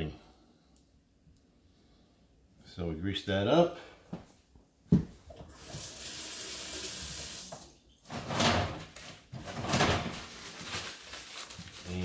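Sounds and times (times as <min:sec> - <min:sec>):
tap water running into sink: 0:05.4 - 0:07.7.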